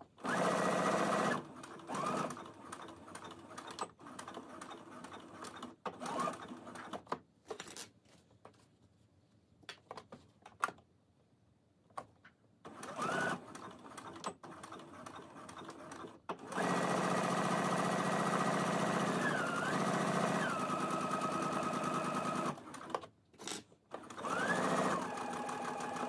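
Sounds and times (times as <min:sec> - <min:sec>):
sewing machine stitching: 0:00.2 - 0:07.1, 0:12.6 - 0:26.0.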